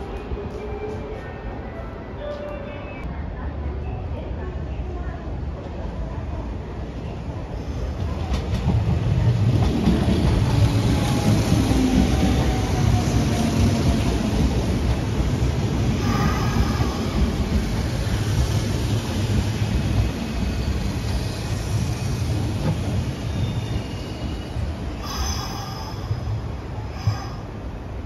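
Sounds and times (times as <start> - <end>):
train wheels rumbling on rails: 5.4 - 28.0.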